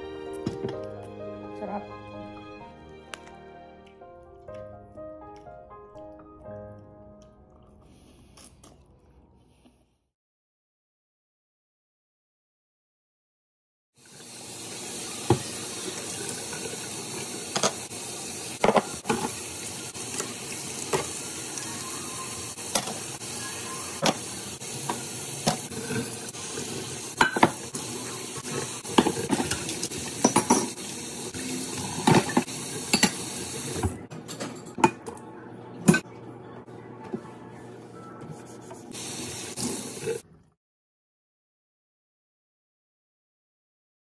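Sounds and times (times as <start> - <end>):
tap running into steel sink: 17.5 - 17.8
crockery and metal clinking: 29.0 - 30.8, 32.0 - 33.3, 34.1 - 35.2.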